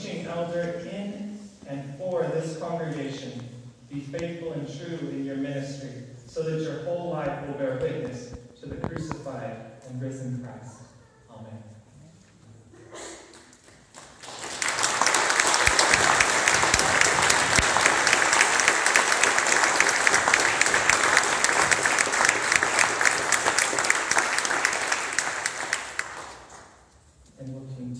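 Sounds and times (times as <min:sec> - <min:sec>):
congregation applauding: 0:13.3 - 0:26.9.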